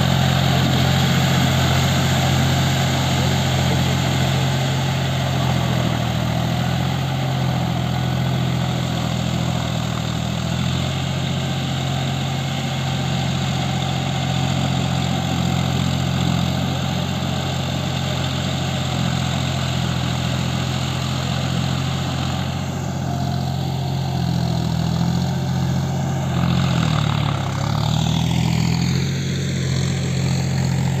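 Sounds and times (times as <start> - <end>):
tiller dragging through mud: 0.0 - 31.0
tractor diesel engine under load: 0.0 - 31.0.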